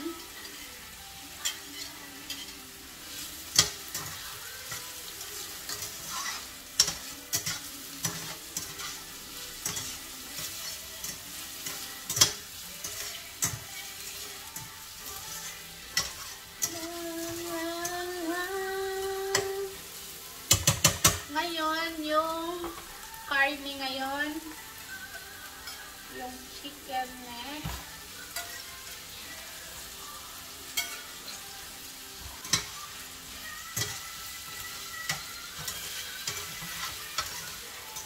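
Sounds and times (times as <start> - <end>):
person humming: 0.0 - 0.6, 16.6 - 19.8
onion and garlic sizzling in oil: 0.0 - 38.0
spatula scraping a frying pan: 1.4 - 17.4, 32.2 - 38.0.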